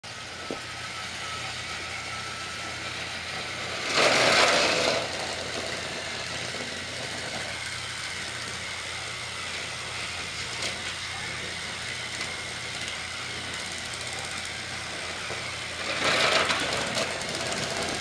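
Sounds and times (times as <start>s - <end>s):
toy train motors whirring: 0.0s - 18.0s
rattling rush: 3.2s - 8.6s, 15.7s - 18.0s.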